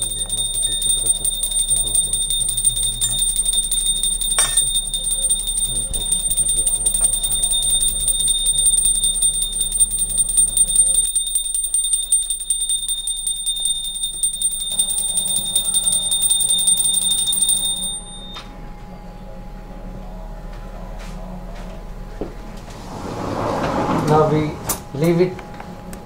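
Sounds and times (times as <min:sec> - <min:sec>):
small hand bell ringing rapidly: 0:00.0 - 0:18.4.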